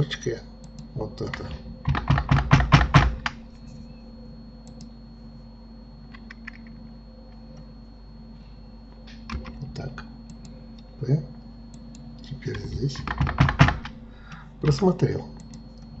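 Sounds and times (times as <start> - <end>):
low electrical hum: 0.0 - 16.0
keyboard typing: 0.6 - 3.4, 13.0 - 14.0.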